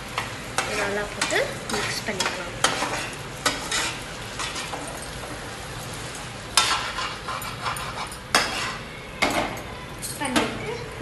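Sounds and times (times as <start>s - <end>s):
vegetables sizzling in frying pan: 0.0s - 11.0s
spatula scraping and knocking pan: 0.2s - 5.4s, 6.6s - 9.4s.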